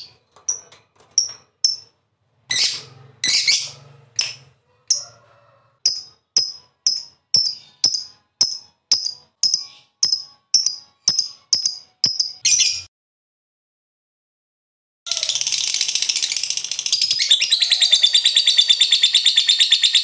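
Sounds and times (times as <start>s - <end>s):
lovebird chirping: 2.5s - 5.0s, 5.9s - 12.9s, 15.1s - 20.0s.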